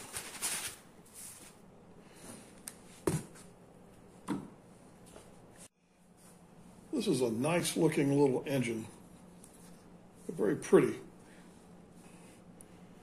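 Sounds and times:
foam and cardboard rustling: 0.0 - 1.6.

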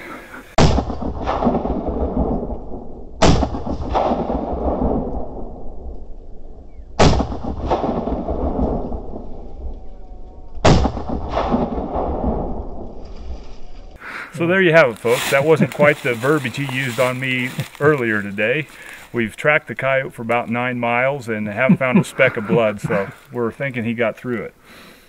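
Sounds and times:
rolling rumble echo: 0.0 - 13.6
rifle shots: 3.2 - 5.1.

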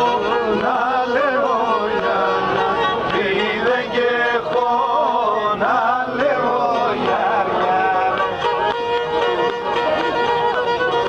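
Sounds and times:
men singing folk song: 0.0 - 8.7
bowed lyra: 0.0 - 11.0.

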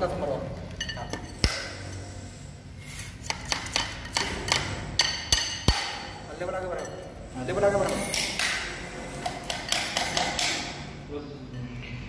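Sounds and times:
sharp metallic knocks and clinks: 0.7 - 1.7.

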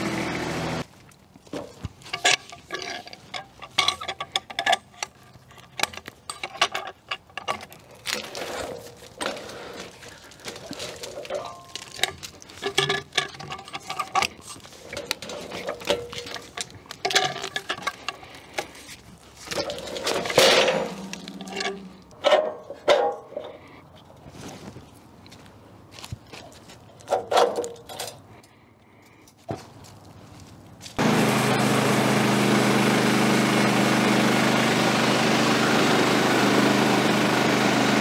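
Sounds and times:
metal clinks and knocks: 1.6 - 9.0, 10.5 - 18.8.

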